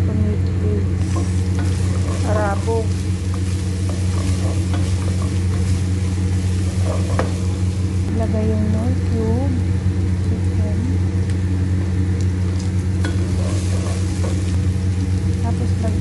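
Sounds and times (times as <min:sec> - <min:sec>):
steady low hum: 0:00.0 - 0:16.0
vegetables sizzling in oil: 0:00.8 - 0:16.0
spatula scraping pot: 0:01.0 - 0:07.7, 0:13.0 - 0:14.6.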